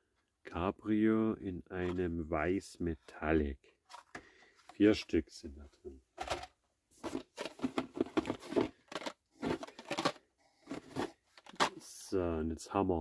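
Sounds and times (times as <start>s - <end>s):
plastic packs rustling in box: 6.2s - 11.8s.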